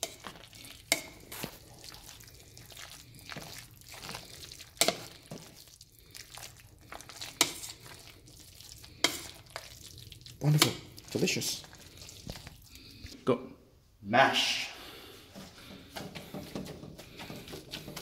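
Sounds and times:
spoon clinking against a pot: 0.0s - 1.4s
spoon squishing food in a pot: 0.0s - 13.2s, 15.4s - 18.0s.

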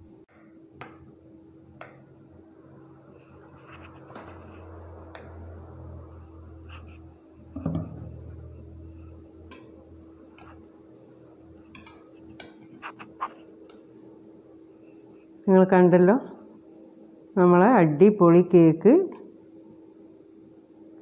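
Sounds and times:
steady low hum: 0.0s - 21.0s
dull knock: 7.6s - 8.2s.

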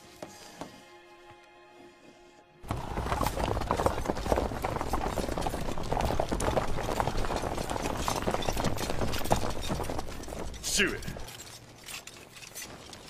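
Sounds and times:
horses galloping on dirt: 2.6s - 13.0s.

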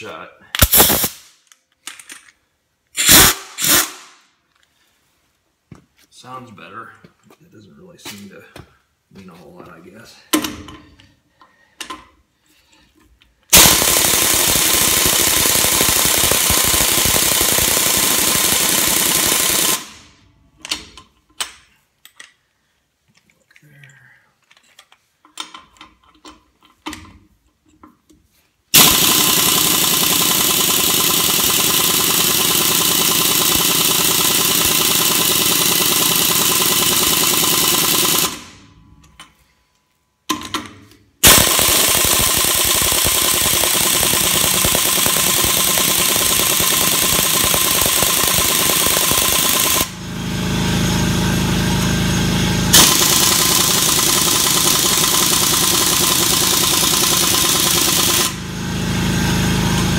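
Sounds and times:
air impact wrench hammering: 0.6s - 1.3s, 3.0s - 4.0s, 13.5s - 20.0s, 28.8s - 38.7s, 41.2s - 50.5s, 51.7s - 59.9s.

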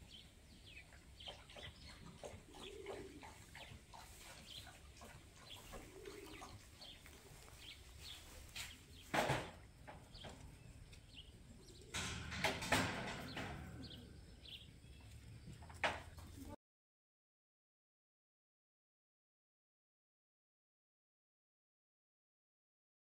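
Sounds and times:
small birds chirping: 0.0s - 16.6s
low coo: 2.0s - 3.7s, 5.6s - 7.4s.

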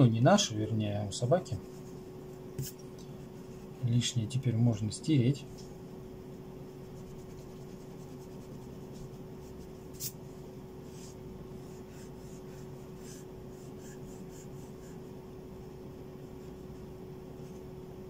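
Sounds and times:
faint steady hum: 0.0s - 18.0s
eraser rubbing on paper: 1.5s - 3.7s, 6.8s - 10.2s, 10.8s - 15.2s.

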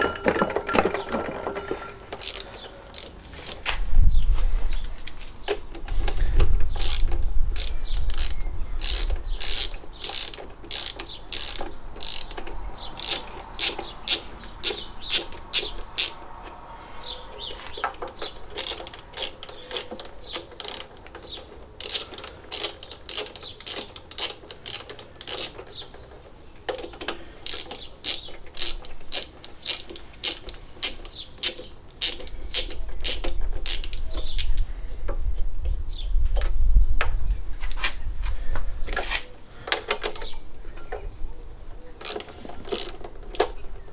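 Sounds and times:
socket ratchet clicking: 2.2s - 3.6s, 6.6s - 16.3s, 17.9s - 25.8s, 27.1s - 34.7s, 42.0s - 43.6s.

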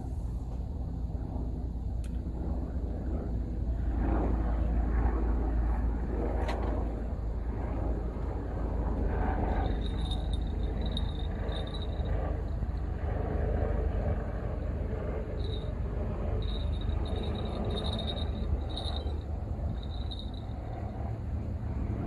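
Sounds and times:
steady low rumble: 0.0s - 22.0s
high-pitched insect chirps: 9.3s - 12.9s, 15.3s - 21.2s.

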